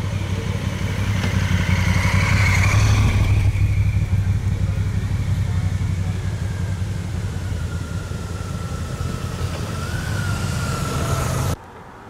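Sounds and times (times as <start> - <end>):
motorcycle engines rumbling: 0.0 - 11.6.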